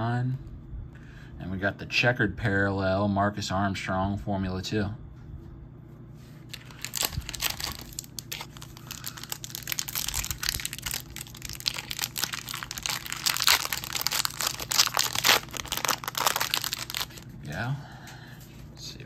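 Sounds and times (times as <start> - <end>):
foil wrapper crinkling and tearing: 6.5 - 17.3.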